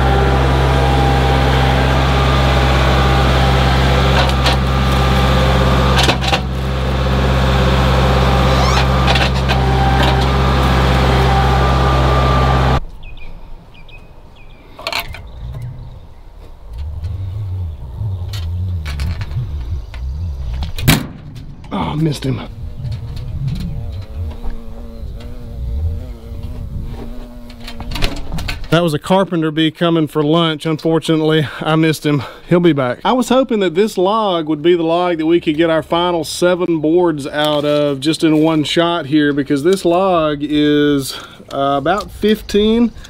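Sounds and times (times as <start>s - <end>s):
tractor engine running: 0.0s - 12.9s, 14.8s - 28.9s
knocks and rustling: 16.4s - 22.0s.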